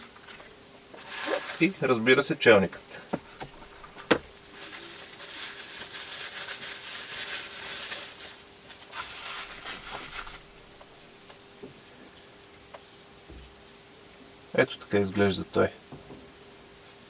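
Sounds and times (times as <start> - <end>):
packaging rustling and crinkling: 1.0 - 1.8, 3.4 - 11.4.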